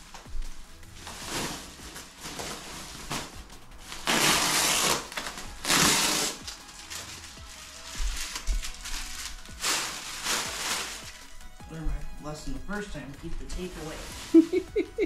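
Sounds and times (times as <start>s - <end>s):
plastic packaging crinkling: 1.0s - 11.5s.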